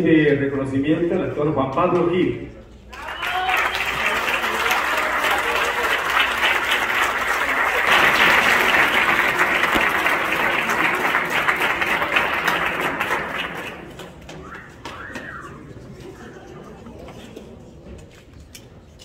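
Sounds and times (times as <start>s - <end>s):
audience applauding: 2.9s - 15.8s.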